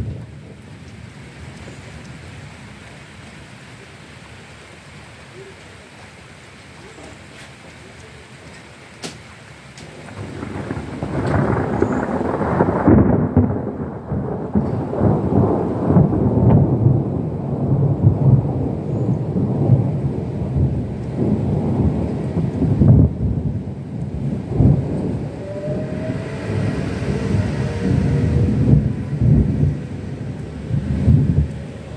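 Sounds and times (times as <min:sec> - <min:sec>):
thunder rolling: 0:00.0 - 0:00.6, 0:09.8 - 0:31.9.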